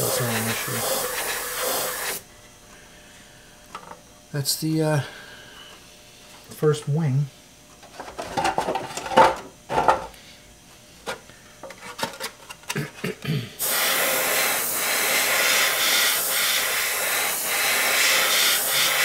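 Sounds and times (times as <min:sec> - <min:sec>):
airbrush spraying hiss: 0:00.0 - 0:02.2, 0:13.6 - 0:19.0.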